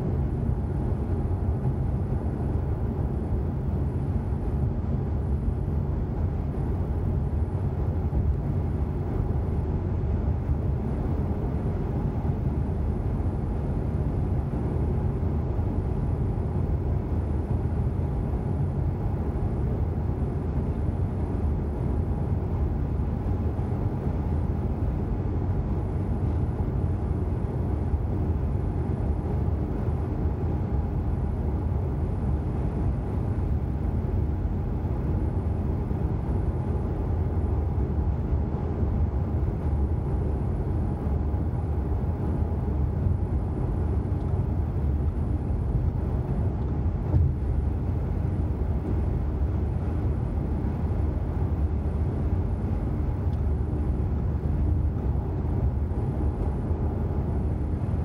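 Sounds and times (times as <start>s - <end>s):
car road and engine rumble: 0.0s - 58.0s
faint steady hum: 0.0s - 58.0s.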